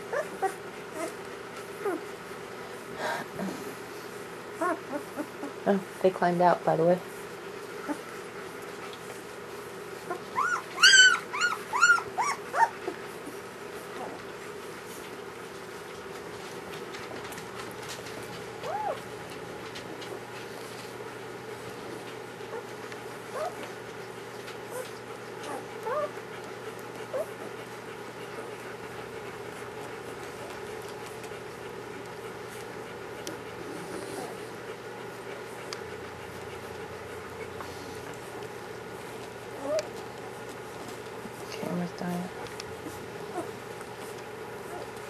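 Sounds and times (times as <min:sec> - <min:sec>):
steady background hum: 0:00.0 - 0:45.0
puppies squealing: 0:10.1 - 0:13.0.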